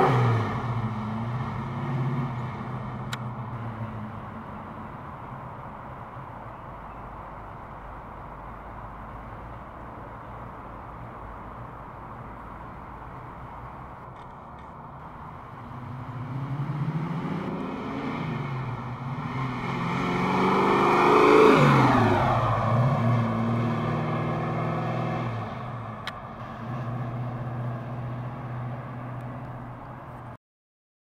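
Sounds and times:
car engine revving as it passes: 0:00.0 - 0:04.7, 0:15.0 - 0:29.8.

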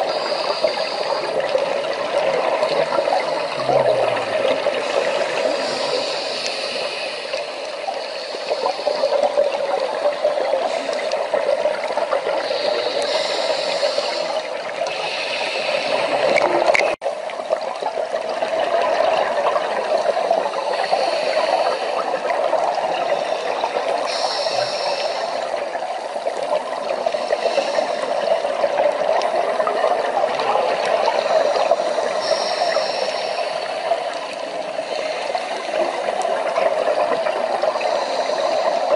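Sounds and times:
underwater rushing and gurgling: 0:00.0 - 0:38.9
high hissing: 0:32.2 - 0:33.7.

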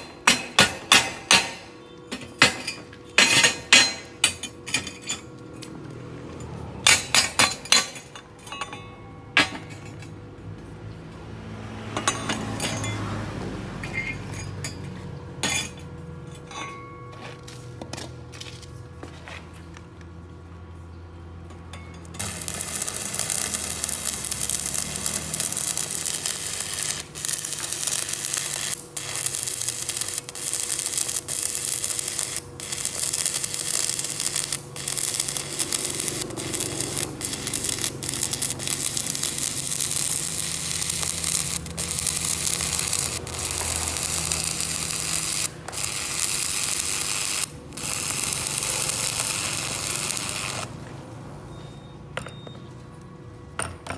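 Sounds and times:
welding arc crackling: 0:22.2 - 0:50.8.

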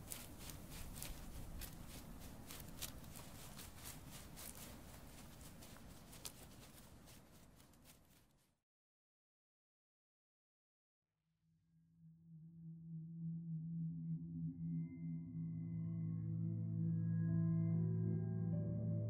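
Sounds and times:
footsteps on forest ground: 0:00.0 - 0:08.5.

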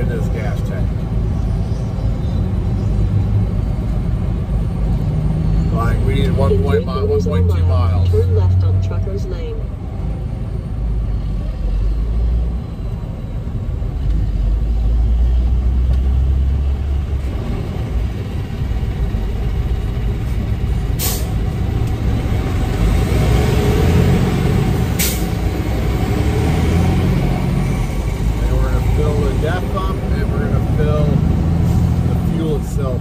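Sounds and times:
truck engine rumble: 0:00.0 - 0:33.0
short sharp hisses: 0:21.0 - 0:21.3.

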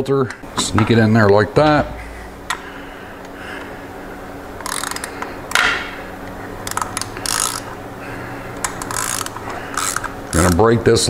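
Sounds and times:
hand ratchet clicking: 0:04.6 - 0:05.3, 0:06.6 - 0:07.8, 0:08.6 - 0:10.7.

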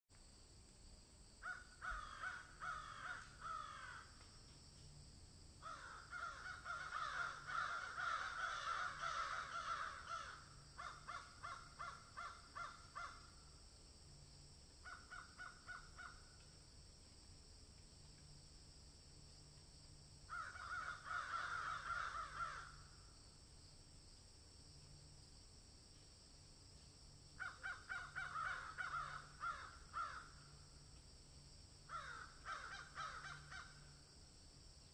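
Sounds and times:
crows cawing: 0:01.4 - 0:04.2, 0:05.6 - 0:13.5, 0:14.8 - 0:16.4, 0:20.3 - 0:23.0, 0:27.4 - 0:30.6, 0:31.9 - 0:34.0.

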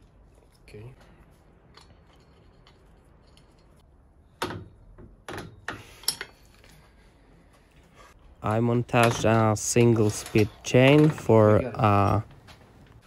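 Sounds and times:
metallic clicks of steel parts: 0:05.3 - 0:06.8.

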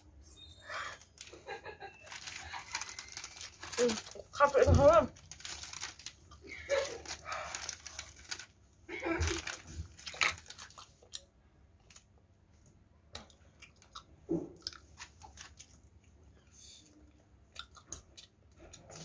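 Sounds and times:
person chewing: 0:09.7 - 0:12.0, 0:13.1 - 0:16.5, 0:17.1 - 0:19.0.

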